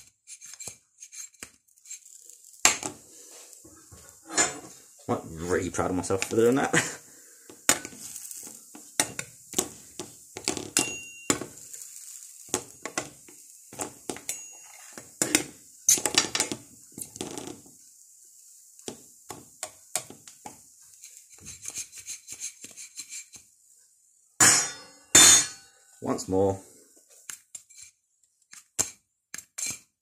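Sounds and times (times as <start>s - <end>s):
metal spatula scraping frying pans: 0.2s - 7.0s, 7.6s - 17.6s, 20.9s - 23.4s, 29.6s - 29.9s.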